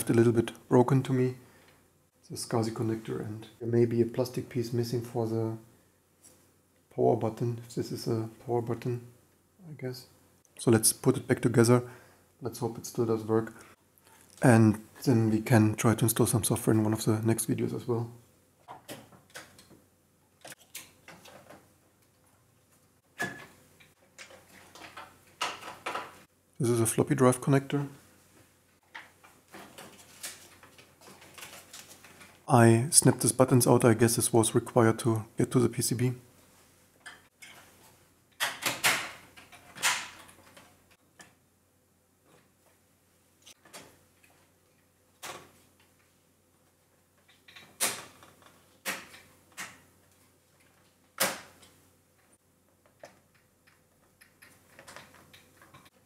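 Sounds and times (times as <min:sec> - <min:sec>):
clicks and knocks of plastic parts: 0:23.2 - 0:26.2, 0:47.2 - 0:56.0
plastic parts clattering: 0:23.2 - 0:26.2, 0:28.9 - 0:32.4.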